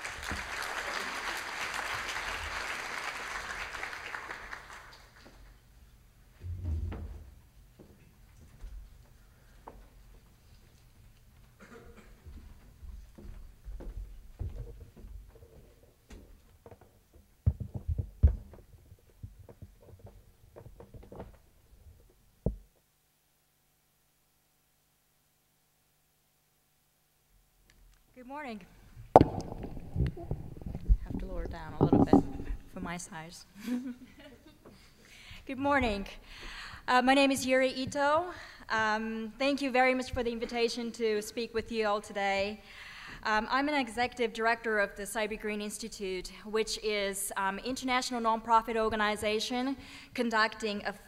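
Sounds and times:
audience applauding: 0.0 - 5.3
faint steady hum: 0.0 - 51.0
dull low thump: 6.4 - 7.4
loud dull thumps: 6.4 - 7.4, 29.2 - 32.8
microphone handling knocks and rustles: 6.4 - 7.5, 16.8 - 21.4, 29.2 - 32.8.

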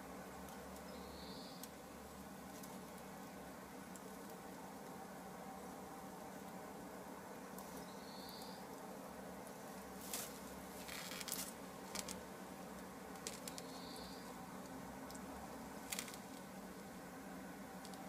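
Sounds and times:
steady low hiss: 0.0 - 18.0
faint high chirp: 0.9 - 1.7, 7.7 - 8.6, 13.5 - 14.3
straw crackling and rustling: 9.4 - 16.5.

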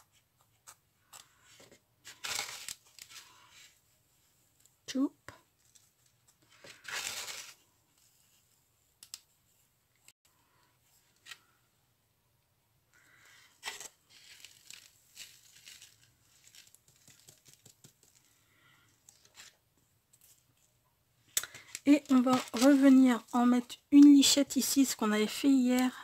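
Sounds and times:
paper rustling: 1.5 - 3.8, 5.6 - 8.4, 13.6 - 18.3, 21.5 - 24.1
light clicks of handled paper craft: 9.0 - 9.3.

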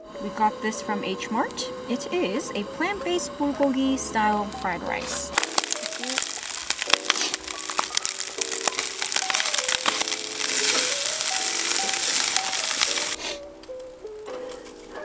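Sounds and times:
light background music: 0.0 - 15.0
rice sizzling in frying pan: 5.3 - 13.5.

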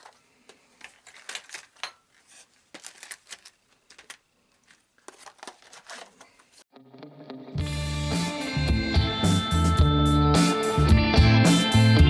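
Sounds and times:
small metal parts clicking: 0.8 - 6.1.

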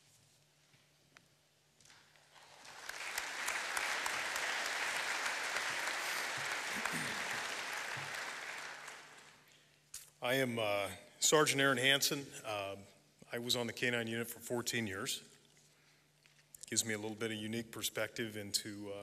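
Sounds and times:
audience applauding: 1.9 - 9.5.

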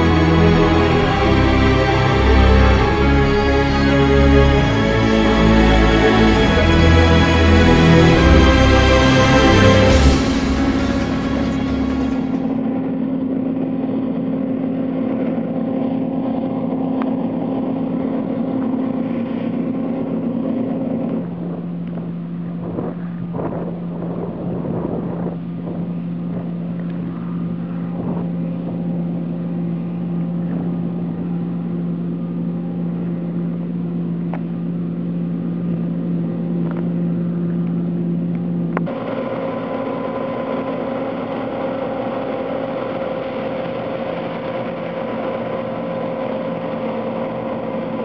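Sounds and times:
combine harvester drone: 0.0 - 48.0.

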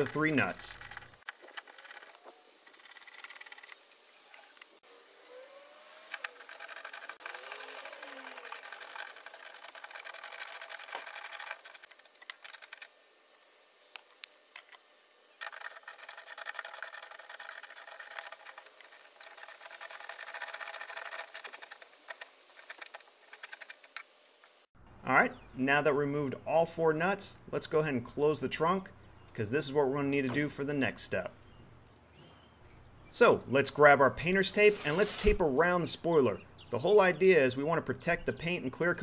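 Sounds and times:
socket ratchet clicking rapidly: 15.4 - 24.0.

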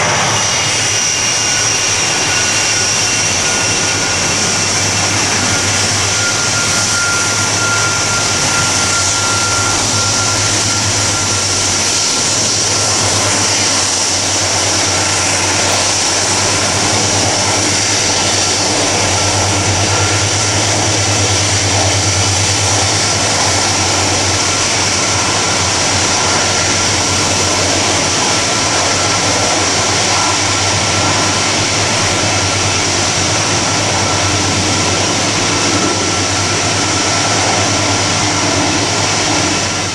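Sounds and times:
jet engines whining: 0.0 - 39.9
thin whistling tone: 0.8 - 28.2.

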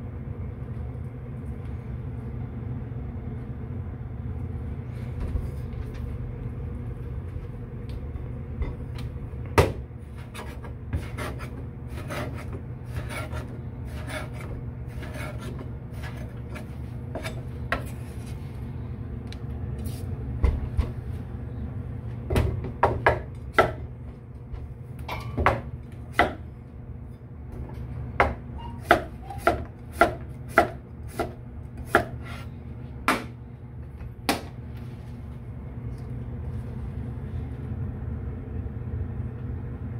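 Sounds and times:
knife scraping fish: 10.2 - 17.4.

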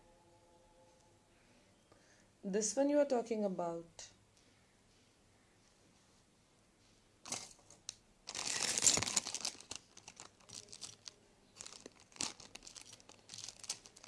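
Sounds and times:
plastic packaging crinkling: 7.2 - 14.0
small crackles and clicks: 7.3 - 14.0.

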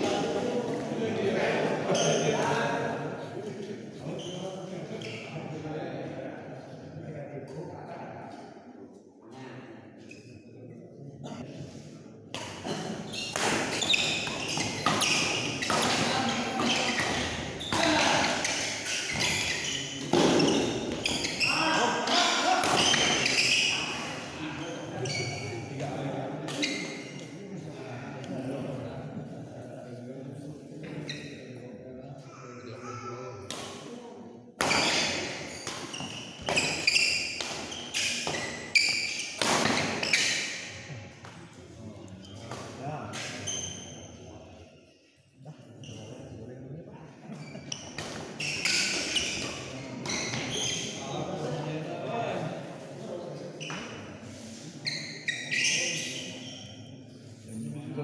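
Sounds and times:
rackets hitting shuttlecock: 13.2 - 19.4.

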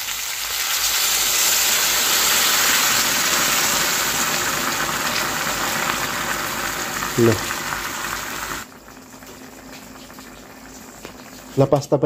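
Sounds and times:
food sizzling and bubbling in wok: 0.0 - 12.0.

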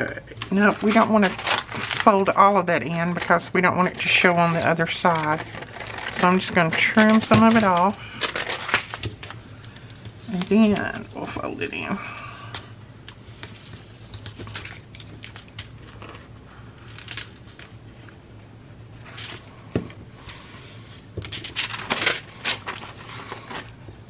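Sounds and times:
paper rustling and crinkling: 0.4 - 11.4, 12.5 - 18.1, 19.0 - 23.9.

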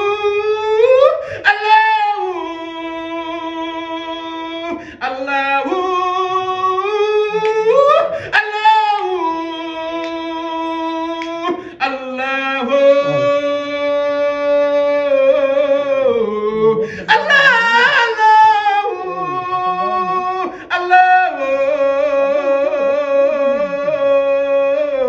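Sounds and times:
person chanting held notes: 12.8 - 13.7, 15.8 - 25.0.

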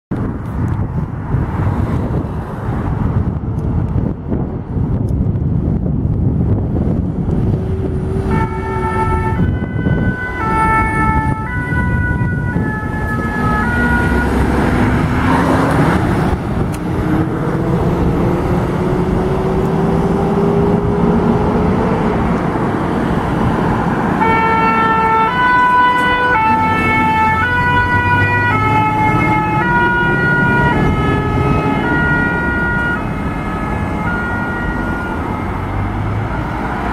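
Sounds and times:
engines accelerating: 6.2 - 36.9
two-tone fire engine sirens: 7.5 - 22.2, 22.8 - 36.9.

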